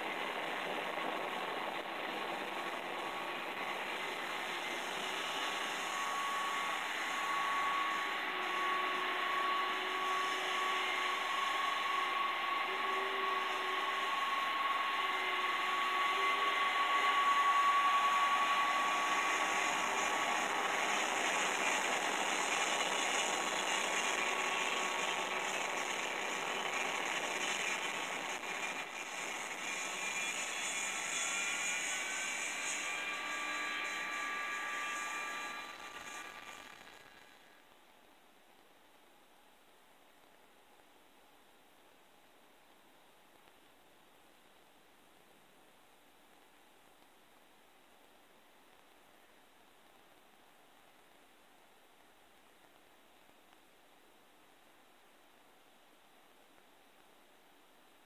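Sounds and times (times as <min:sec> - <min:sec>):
jet engines whining through speaker: 0:00.0 - 0:37.4
rising whine: 0:00.0 - 0:37.6.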